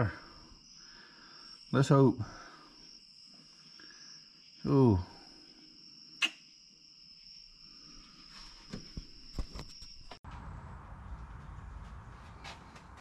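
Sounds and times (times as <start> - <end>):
high-pitched insect trill: 0.0 - 10.2
low rumbling noise: 10.2 - 13.0.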